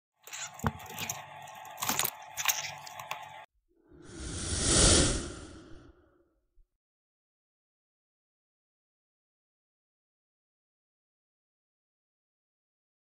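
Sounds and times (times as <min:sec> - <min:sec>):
whoosh: 0:04.0 - 0:06.0.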